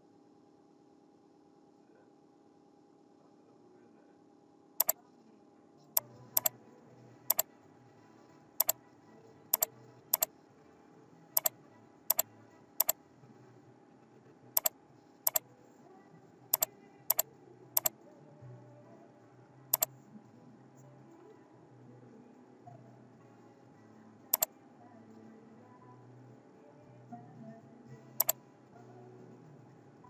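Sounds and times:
computer mouse button clicks: 0:09.6 - 0:10.3, 0:16.6 - 0:17.2.

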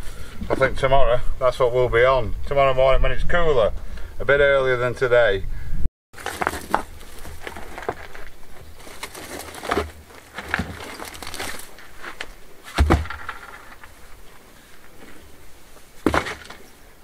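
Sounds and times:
stones knocking and scraping: 0:06.2 - 0:15.2, 0:16.0 - 0:16.7
heavy stone thud: 0:09.5 - 0:11.7, 0:12.7 - 0:14.0, 0:16.0 - 0:16.7.

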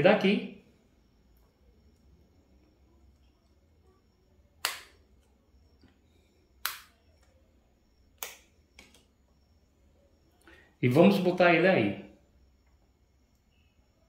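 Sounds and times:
sharp plastic clicks: 0:04.6 - 0:05.3, 0:06.6 - 0:07.0, 0:08.2 - 0:09.1.

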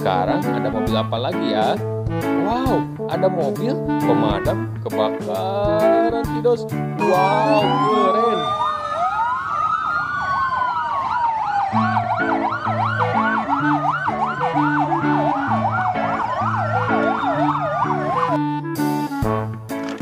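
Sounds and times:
low stepped-note tune: 0:07.0 - 0:08.4, 0:11.7 - 0:19.1
siren wailing: 0:07.0 - 0:19.2
siren yelping: 0:07.0 - 0:19.2.

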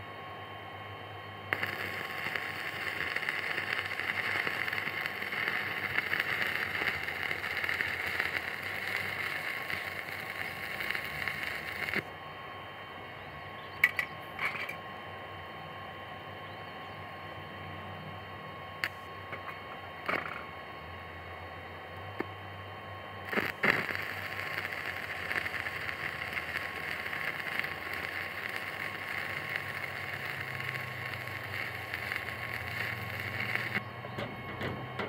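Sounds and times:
welding arc crackling: 0:01.5 - 0:12.1, 0:23.2 - 0:34.0.

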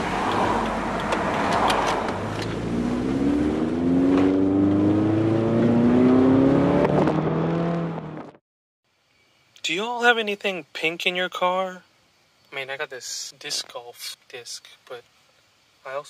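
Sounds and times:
car engine accelerating: 0:00.0 - 0:08.4
road and wind noise: 0:00.0 - 0:08.4.

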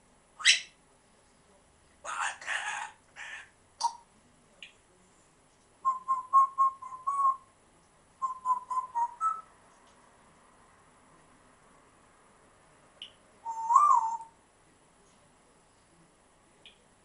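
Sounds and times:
parrot chirping: 0:00.4 - 0:00.8, 0:02.0 - 0:04.0, 0:13.4 - 0:14.3.

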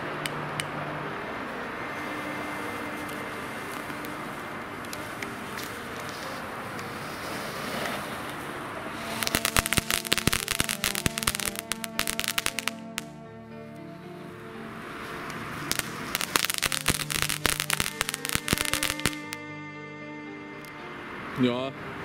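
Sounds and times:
firework fountain hissing: 0:02.0 - 0:13.1, 0:14.8 - 0:19.4
loud sharp crackles: 0:02.1 - 0:13.2, 0:15.0 - 0:19.4.

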